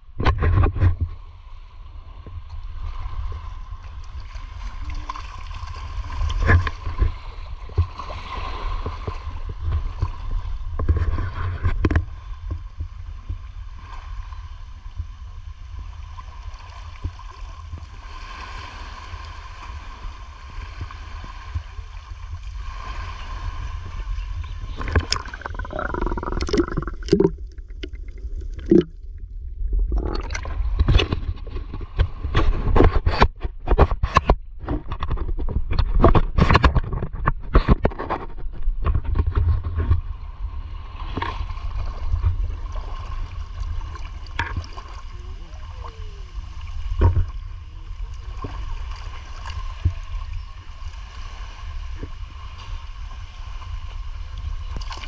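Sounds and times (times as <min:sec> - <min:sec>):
water swirling and gurgling: 0:00.0 - 0:55.0
low rumble: 0:24.2 - 0:32.7.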